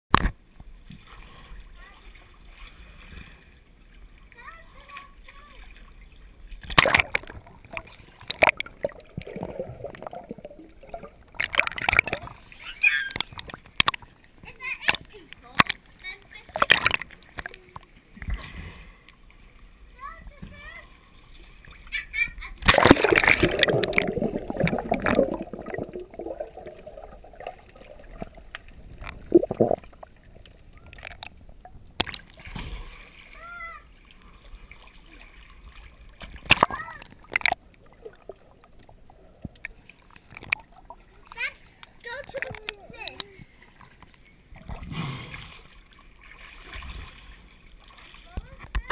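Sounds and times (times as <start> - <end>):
water splashing: 4.2 - 19.6, 20.6 - 48.9
underwater gurgling and bubbling: 6.6 - 12.5, 22.6 - 32.2, 36.4 - 41.0
faint clicks: 41.8 - 44.3.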